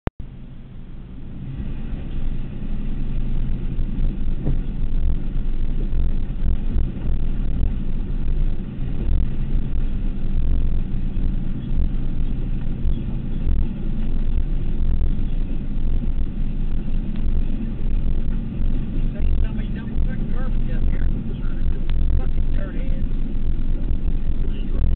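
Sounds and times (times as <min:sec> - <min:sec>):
truck engine rumbling: 0:00.2 - 0:24.9.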